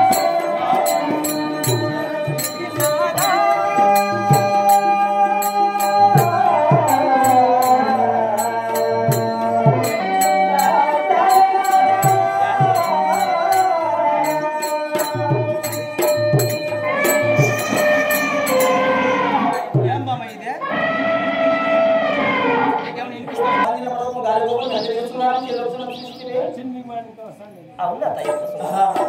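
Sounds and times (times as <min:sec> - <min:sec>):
drum beats: 0:00.0 - 0:20.6, 0:28.0 - 0:29.0
keyboard: 0:00.0 - 0:29.0.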